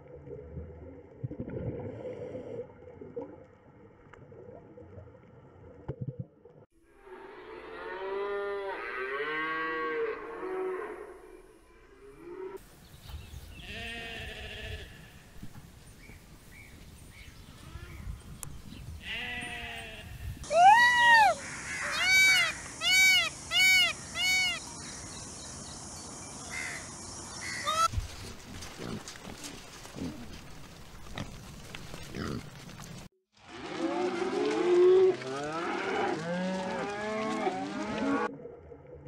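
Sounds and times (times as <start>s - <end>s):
peacock calling: 20.5s - 25.0s, 26.5s - 28.0s.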